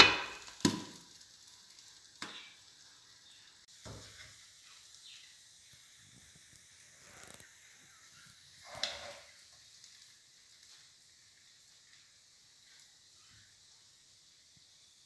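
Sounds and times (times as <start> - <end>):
faint sizzle: 0.0 - 15.0.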